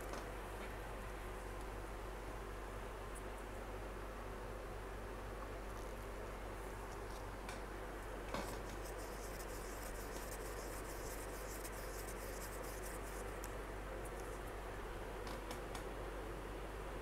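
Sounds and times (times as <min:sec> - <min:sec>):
low hum and hiss: 0:00.0 - 0:17.0
stick stirring resin in a cup: 0:08.6 - 0:13.5.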